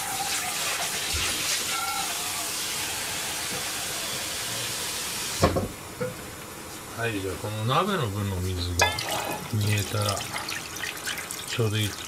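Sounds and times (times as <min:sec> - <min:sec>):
kitchen tap running: 0:00.0 - 0:05.7, 0:08.6 - 0:12.0
knock: 0:05.4 - 0:05.7.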